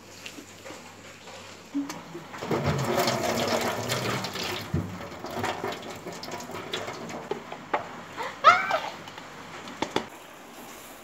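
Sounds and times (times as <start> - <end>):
water pouring through metal strainer: 2.3 - 7.5.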